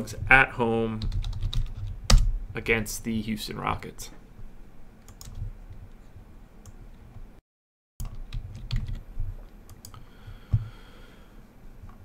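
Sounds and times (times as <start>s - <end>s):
typing on a computer keyboard: 1.0s - 2.2s, 8.0s - 9.0s.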